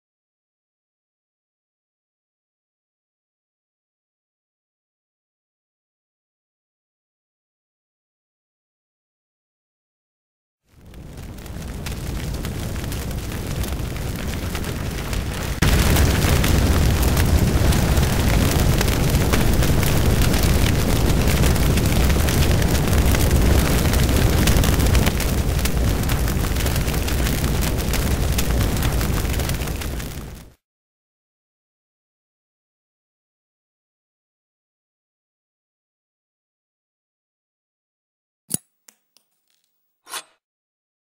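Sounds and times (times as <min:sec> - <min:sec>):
fire burning and crackling: 0:10.7 - 0:30.6.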